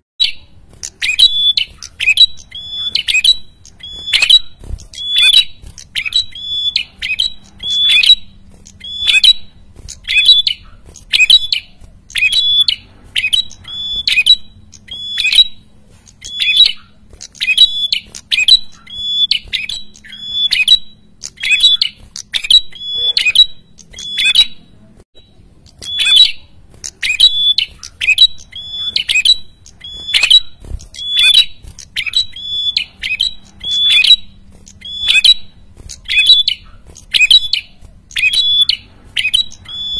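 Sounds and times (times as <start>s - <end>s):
bird calling sharply: 0.2s - 24.7s.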